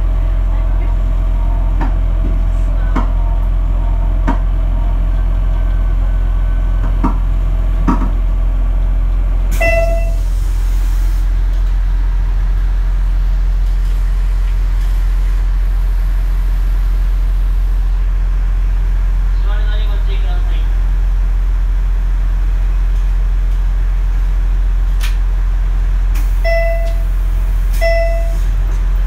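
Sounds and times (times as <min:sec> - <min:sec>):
diesel railcar engine idling: 0:00.0 - 0:29.0
short pitched toot: 0:09.5 - 0:10.2.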